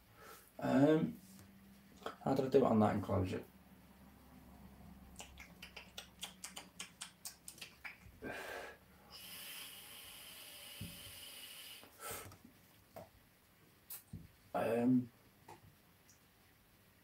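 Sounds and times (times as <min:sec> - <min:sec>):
person breathing: 0:00.0 - 0:00.6, 0:08.2 - 0:12.4
e-cigarette hiss: 0:09.1 - 0:12.0.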